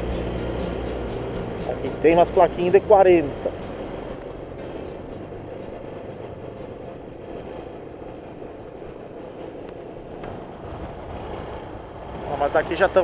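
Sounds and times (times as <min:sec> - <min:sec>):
motorcycle engine running: 0:00.0 - 0:09.3
wind rush on microphone: 0:00.0 - 0:13.0.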